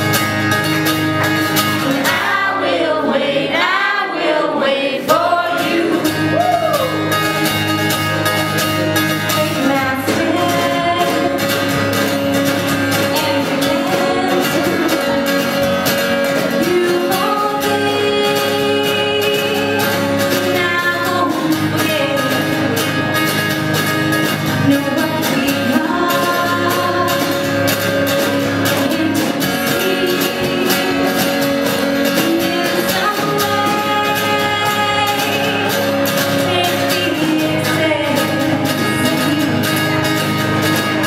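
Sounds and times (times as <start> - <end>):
strummed acoustic guitar: 0.0 - 41.0
woman singing: 2.0 - 7.1, 9.2 - 11.8, 12.9 - 15.7, 16.3 - 23.1, 24.6 - 27.9, 28.6 - 40.2.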